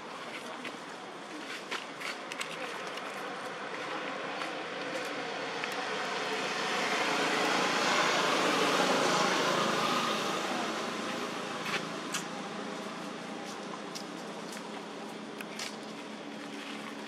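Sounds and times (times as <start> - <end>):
motor vehicle passing: 4.6 - 13.9.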